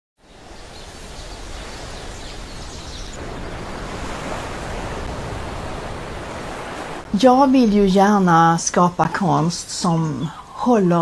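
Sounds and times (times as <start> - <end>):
sea surf: 0.2 - 8.3
wind: 0.2 - 11.0.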